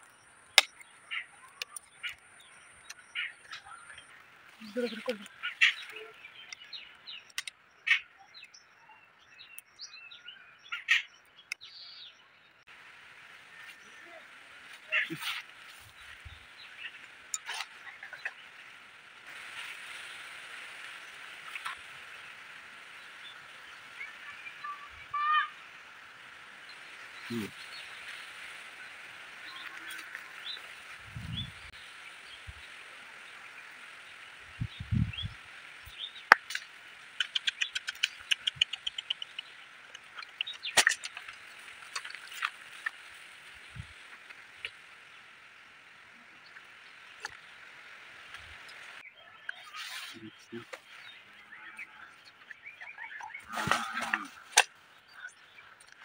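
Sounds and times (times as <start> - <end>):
bamboo sticks clicking: 7.3 - 7.6, 36.3 - 43.0
steady high-pitched hiss: 12.7 - 52.8.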